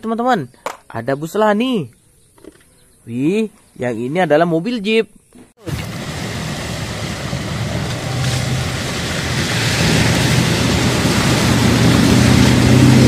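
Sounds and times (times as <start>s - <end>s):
vehicle engine hum: 5.6s - 13.0s
water rushing and splashing: 5.6s - 13.0s.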